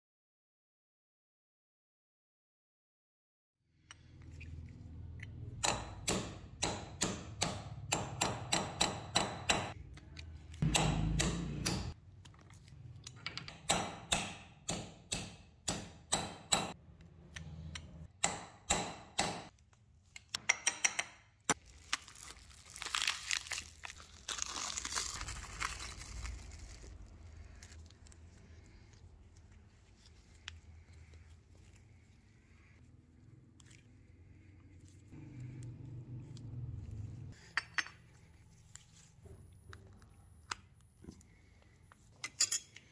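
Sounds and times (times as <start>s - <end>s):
hammer tapping on metal: 13.4s - 16.8s
handling of metal parts: 41.9s - 42.9s.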